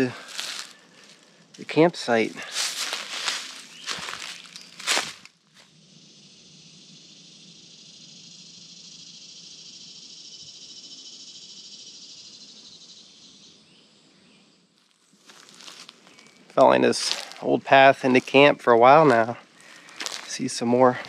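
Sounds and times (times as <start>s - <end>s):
insects buzzing drone: 0.0s - 14.7s.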